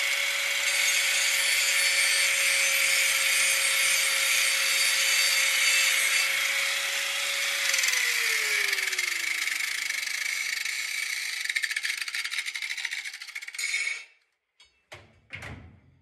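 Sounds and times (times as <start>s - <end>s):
angle grinder grinding metal: 0.0s - 14.1s
grinder spinning down: 6.4s - 14.0s.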